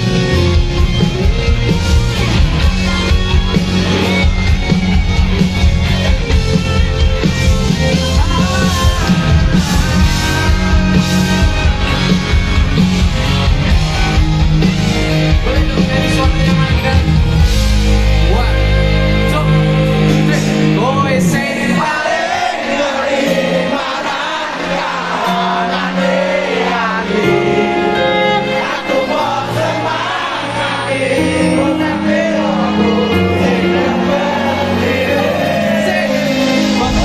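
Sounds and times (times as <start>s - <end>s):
bass notes: 0.0s - 21.4s, 31.2s - 37.0s
live band with singing: 0.0s - 37.0s.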